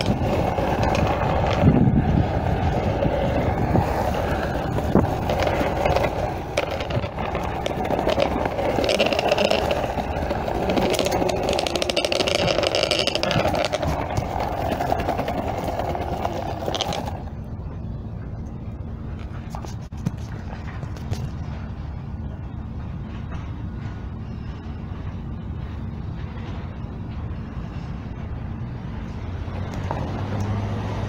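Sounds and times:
skateboard wheels rolling on pavement: 0.0s - 17.8s, 24.8s - 31.0s.

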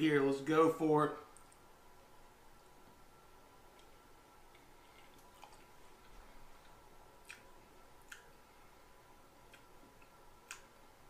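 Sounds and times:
faint steady tone: 0.0s - 11.0s
man chewing food: 3.6s - 11.0s.

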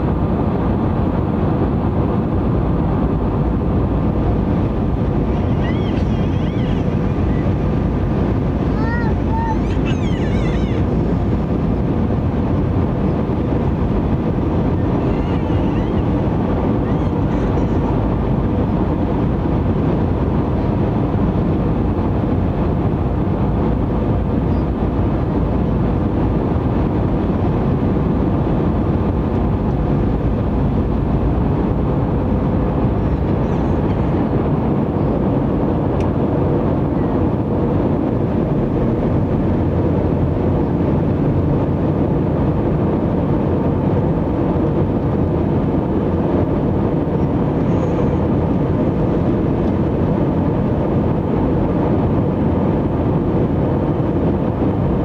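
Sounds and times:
airplane cabin rumble: 0.0s - 55.0s.

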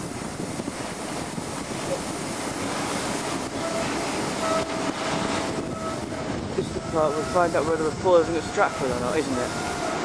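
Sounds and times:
train rail noise: 0.0s - 10.0s
wind buffeting microphone: 0.0s - 10.0s.

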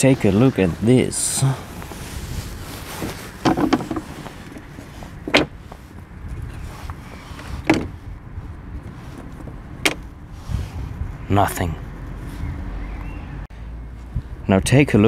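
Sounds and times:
steady low rumble: 0.0s - 15.0s
taps on wooden decking: 5.2s - 5.6s, 7.6s - 7.9s.

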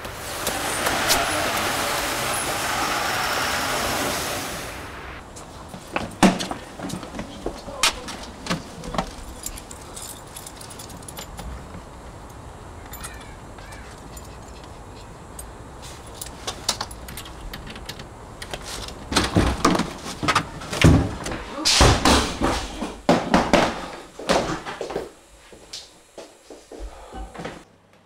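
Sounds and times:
low background hum: 0.0s - 28.0s
keys jangling: 9.1s - 11.6s, 12.9s - 18.0s.

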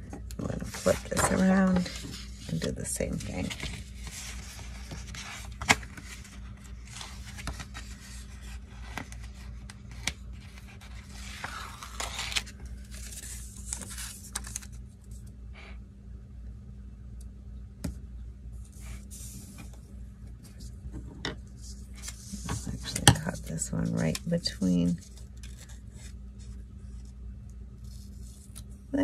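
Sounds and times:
paper page rustling: 0.4s - 15.2s, 18.6s - 19.8s, 21.5s - 27.2s.

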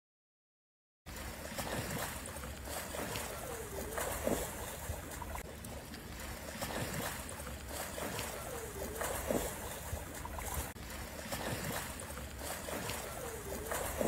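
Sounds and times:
pool water splashing: 1.1s - 14.0s.

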